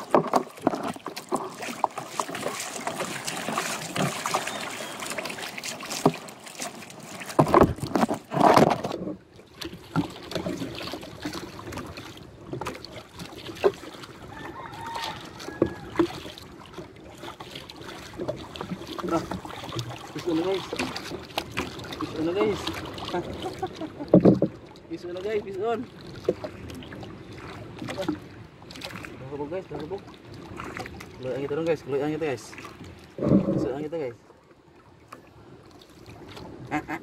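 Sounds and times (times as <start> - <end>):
knocks on boat: 0.0 - 1.5, 7.3 - 9.2, 24.1 - 24.6
water splashing against boat hull: 0.0 - 37.0.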